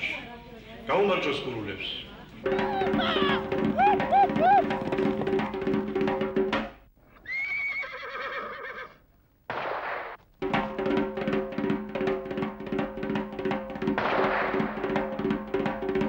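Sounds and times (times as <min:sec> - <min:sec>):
horse whinnying: 0:02.5 - 0:05.2, 0:07.2 - 0:09.0.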